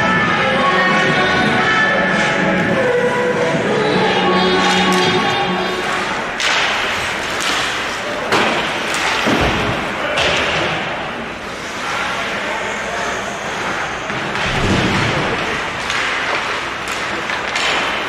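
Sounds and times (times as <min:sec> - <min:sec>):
arena music: 0:00.0 - 0:07.2
skates scraping ice: 0:04.0 - 0:10.6, 0:11.4 - 0:18.0
hockey stick hitting puck: 0:05.8 - 0:11.0, 0:14.1 - 0:18.0.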